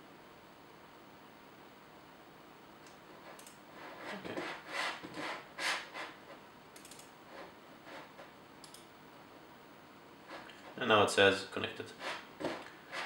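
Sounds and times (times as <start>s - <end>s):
handling rubbing and scraping: 3.1s - 6.4s, 7.2s - 8.4s, 10.2s - 10.9s, 11.8s - 13.0s
short light clicks: 6.8s - 7.1s, 8.6s - 8.9s.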